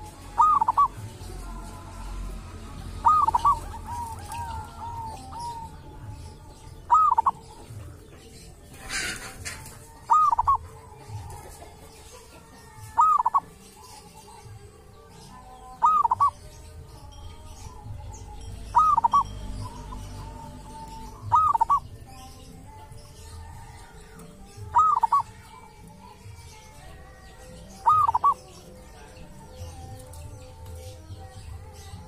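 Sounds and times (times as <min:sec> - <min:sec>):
dove cooing: 0:00.0 - 0:01.6, 0:03.0 - 0:07.9, 0:08.6 - 0:13.9, 0:15.8 - 0:16.5, 0:18.1 - 0:22.1, 0:23.5 - 0:26.0, 0:27.6 - 0:29.0.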